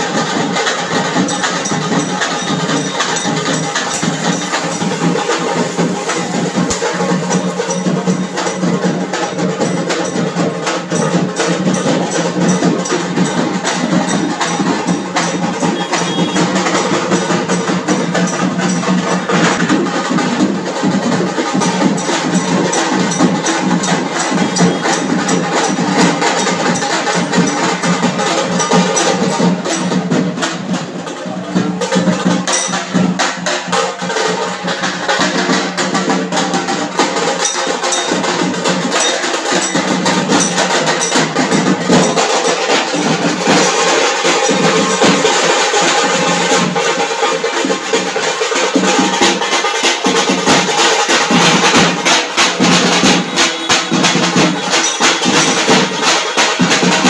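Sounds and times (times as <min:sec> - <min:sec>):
large drums beaten fast: 0:00.0 - 0:57.0.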